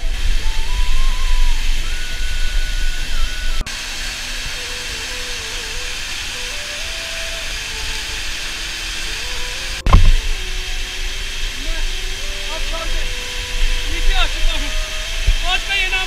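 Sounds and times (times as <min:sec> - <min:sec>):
waterfall hiss: 0:00.0 - 0:16.0
faint background music melody: 0:00.1 - 0:16.0
heavy low rumble: 0:09.8 - 0:15.7.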